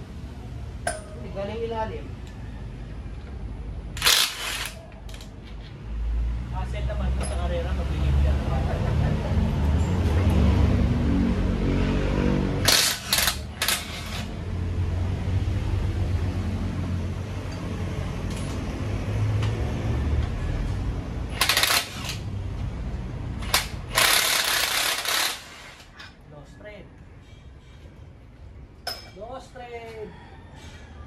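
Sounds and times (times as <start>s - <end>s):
impact wrench bursts on bolts: 4.0s - 5.3s, 12.6s - 14.3s, 21.3s - 22.3s, 23.4s - 26.0s.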